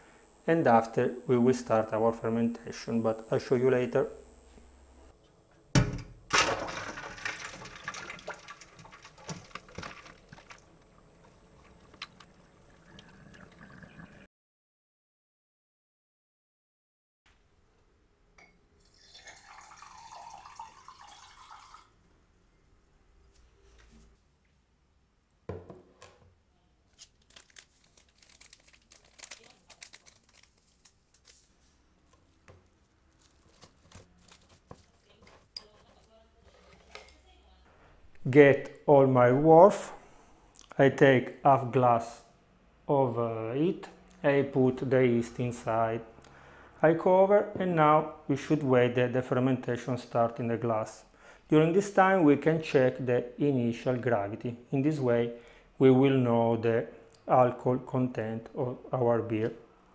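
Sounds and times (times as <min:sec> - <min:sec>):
water splashing in a sink: 0:06.3 - 0:14.3, 0:18.9 - 0:21.9
sachet tearing and crinkling: 0:26.9 - 0:35.2
plastic wrap crinkling: 0:26.9 - 0:37.1.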